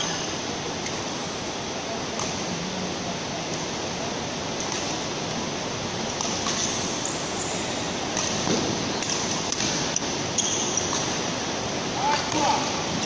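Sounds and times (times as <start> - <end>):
steady rushing background noise: 0.0 - 13.0
racket hitting shuttlecock: 8.1 - 11.2.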